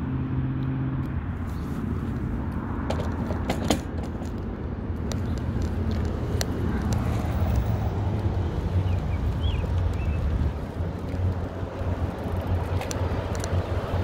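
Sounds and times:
tyre and road noise: 0:00.0 - 0:14.0
bicycle clicks: 0:02.9 - 0:14.0
wind buffeting microphone: 0:04.4 - 0:14.0.

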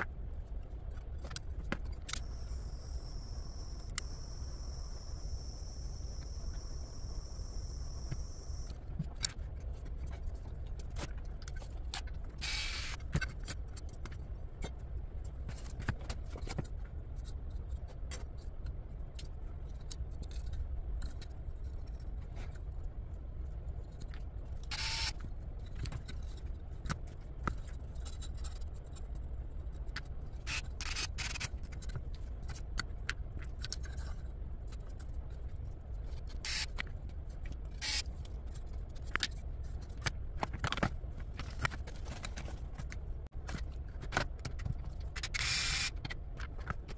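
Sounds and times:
small parts clicking and scraping: 0:00.0 - 0:46.9
rotary tool whining: 0:02.1 - 0:08.7, 0:12.4 - 0:13.0, 0:24.7 - 0:25.1, 0:30.4 - 0:31.5, 0:36.4 - 0:36.8, 0:37.7 - 0:38.1, 0:45.1 - 0:46.0.

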